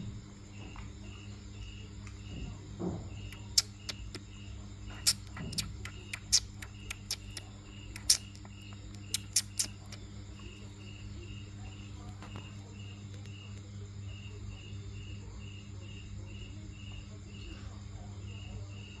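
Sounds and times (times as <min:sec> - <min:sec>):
insect chirping: 0:00.0 - 0:19.0
steady low hum: 0:00.0 - 0:19.0
sharp clicks: 0:05.0 - 0:10.0.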